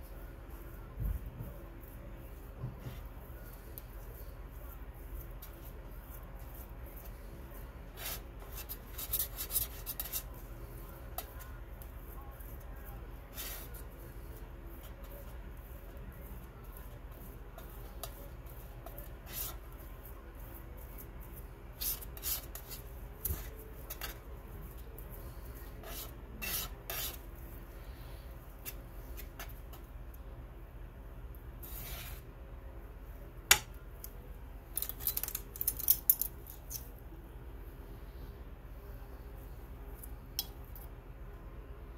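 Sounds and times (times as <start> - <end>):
palette knife scraping: 2.8 - 27.3.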